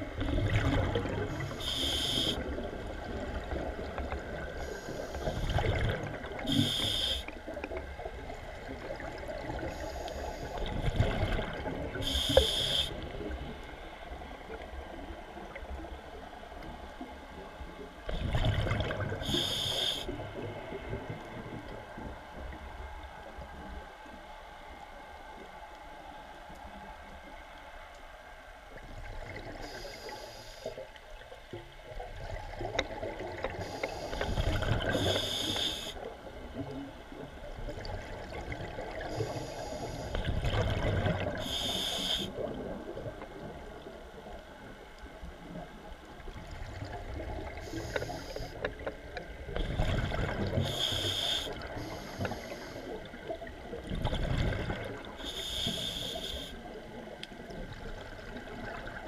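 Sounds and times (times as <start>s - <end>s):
exhaled bubbles rumbling: 0.0s - 1.7s, 5.3s - 6.6s, 10.6s - 12.2s, 17.8s - 19.4s, 31.9s - 35.0s, 40.1s - 41.7s, 48.7s - 50.8s, 53.0s - 55.2s
steady underwater hiss: 0.0s - 59.0s
regulator hissing inhalations: 1.4s - 2.4s, 6.5s - 7.3s, 9.7s - 10.6s, 12.0s - 13.0s, 19.2s - 20.2s, 29.6s - 30.8s, 33.6s - 36.0s, 39.1s - 40.2s, 41.4s - 42.4s, 47.6s - 48.6s, 50.6s - 53.0s, 55.2s - 56.6s.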